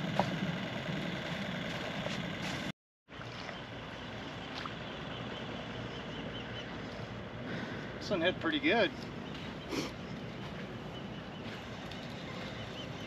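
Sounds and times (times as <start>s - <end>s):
water moving along a shoreline: 0.0s - 13.0s.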